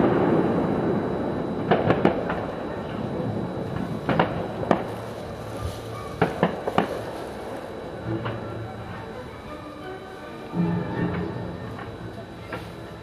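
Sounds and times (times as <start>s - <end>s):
fireworks rumble: 0.0s - 13.0s
distant fireworks pops: 1.6s - 8.4s, 11.0s - 13.0s.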